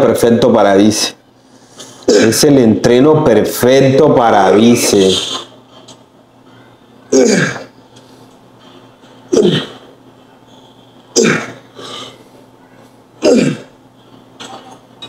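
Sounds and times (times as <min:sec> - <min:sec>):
man grunting: 0:07.1 - 0:07.7, 0:09.3 - 0:09.9, 0:13.2 - 0:13.7.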